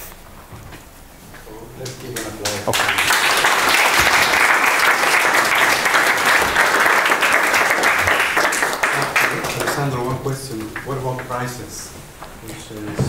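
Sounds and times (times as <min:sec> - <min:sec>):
audience applause: 0:01.6 - 0:11.9.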